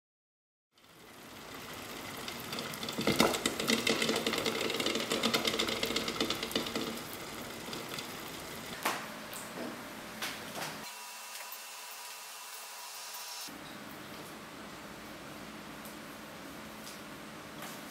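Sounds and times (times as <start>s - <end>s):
eggs rattling in boiling water: 0.8s - 8.8s.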